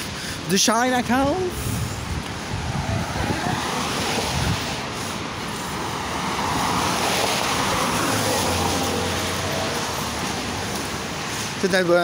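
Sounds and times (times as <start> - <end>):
car passing: 1.3 - 12.0
car tyres hissing on wet road: 1.3 - 12.0.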